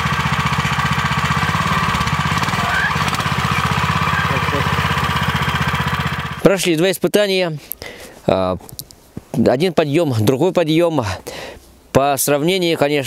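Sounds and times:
small tractor engine running: 0:00.0 - 0:06.5.

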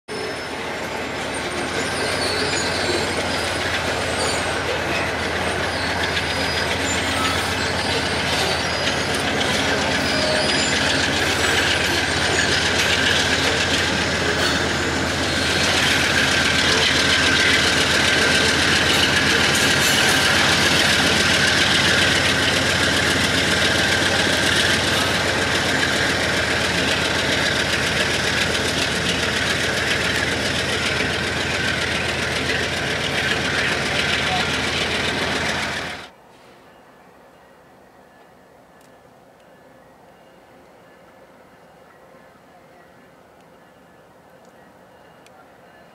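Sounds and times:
thin steady squeal: 0:00.1 - 0:35.9
train wheels on rails: 0:00.1 - 0:36.8
diesel locomotive engines: 0:00.1 - 0:45.9.

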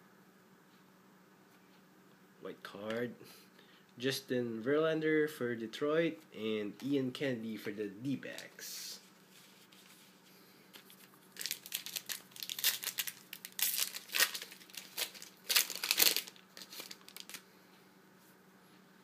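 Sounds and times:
foil wrapper tearing and crinkling: 0:10.8 - 0:17.4.

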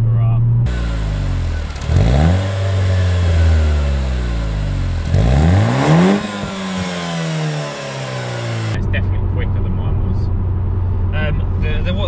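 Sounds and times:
car engine revving: 0:00.7 - 0:08.9.

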